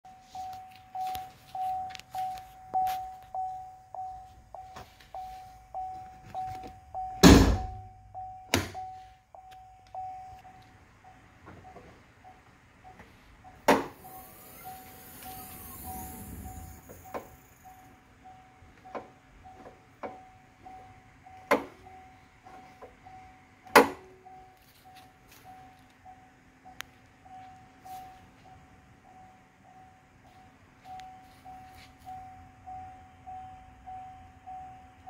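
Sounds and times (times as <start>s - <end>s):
car warning chime beeping: 0.1s - 35.0s
clunk: 13.6s - 14.0s.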